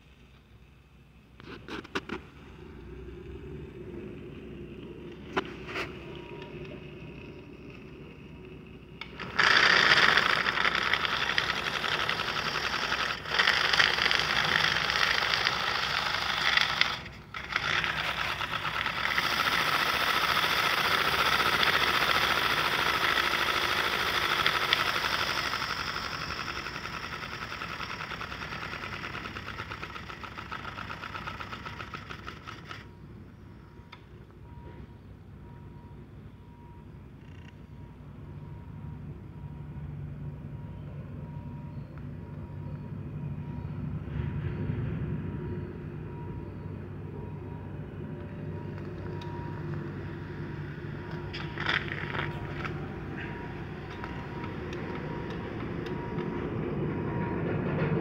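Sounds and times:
steam locomotive chuffing: 0:09.0 - 0:32.9, 0:43.3 - 0:58.0.

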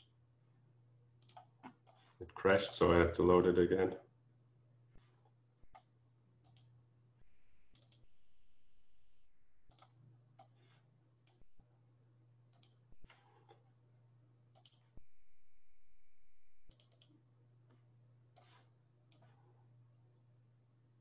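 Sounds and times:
low electrical hum: 0:00.0 - 0:21.0
computer mouse clicks: 0:01.2 - 0:02.8, 0:05.6 - 0:06.7, 0:07.6 - 0:08.2, 0:09.6 - 0:11.5, 0:12.5 - 0:13.6, 0:14.5 - 0:15.1, 0:16.6 - 0:17.2, 0:18.3 - 0:19.4.

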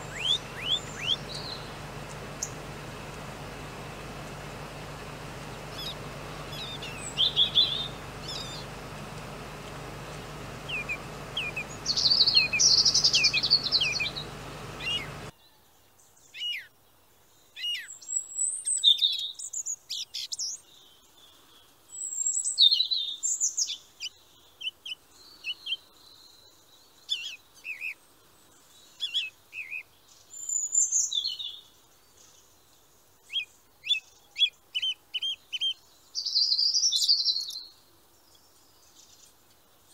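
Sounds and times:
steady background hiss: 0:00.0 - 0:16.1
songbirds chirping and singing: 0:00.0 - 0:16.8.

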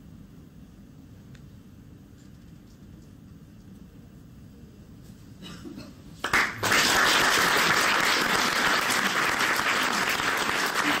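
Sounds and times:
audience applause: 0:06.2 - 0:11.0.

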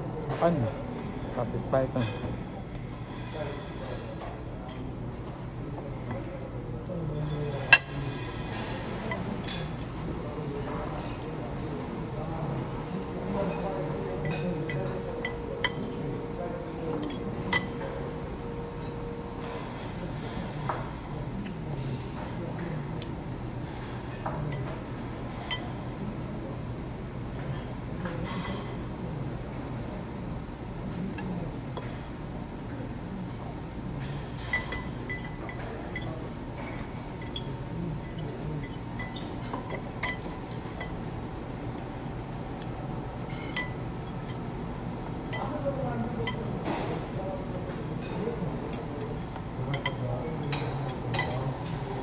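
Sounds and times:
steady low hum: 0:00.0 - 0:28.0, 0:28.6 - 0:52.0
cutlery clinking on plates: 0:13.4 - 0:15.9, 0:33.4 - 0:41.2, 0:48.0 - 0:52.0.

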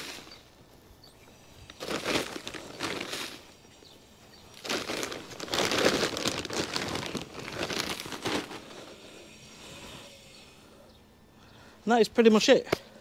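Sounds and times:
plastic bags crinkling: 0:01.7 - 0:03.5, 0:04.5 - 0:08.9.

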